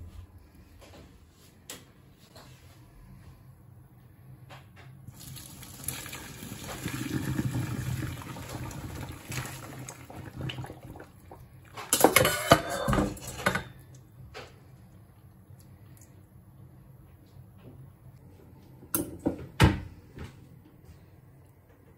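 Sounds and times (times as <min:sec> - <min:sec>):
water pouring through sieve: 0:05.1 - 0:11.8.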